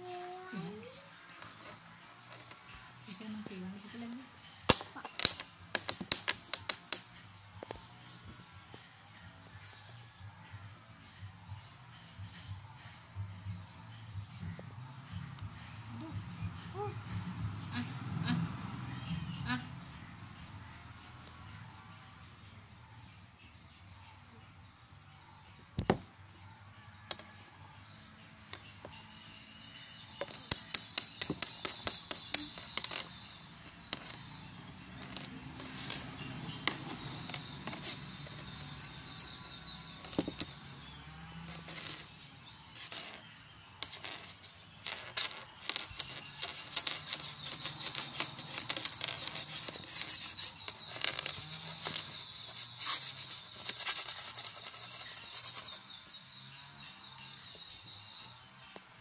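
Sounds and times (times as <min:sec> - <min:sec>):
birds chirping faintly: 0:00.0 - 0:59.0
plastic items clicking on table: 0:04.7 - 0:07.1.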